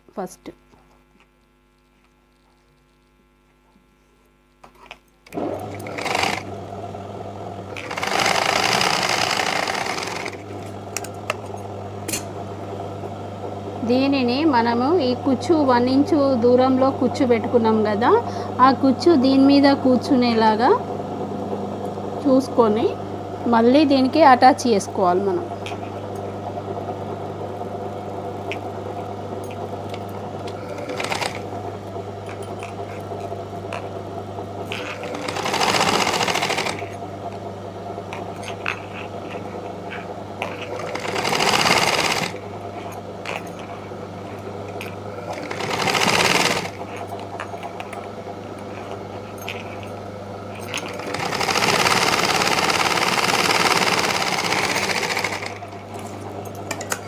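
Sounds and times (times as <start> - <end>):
sewing machine stitching: 5.3 - 6.6, 7.7 - 11.4, 29.5 - 31.6, 34.6 - 37.0, 38.1 - 42.5, 44.8 - 47.8, 50.5 - 56.0.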